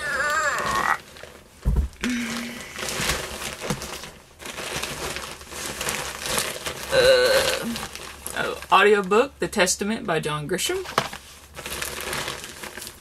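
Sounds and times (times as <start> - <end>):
plastic bag rustling: 0.1 - 9.1, 10.8 - 13.0
low thump: 1.6 - 2.0.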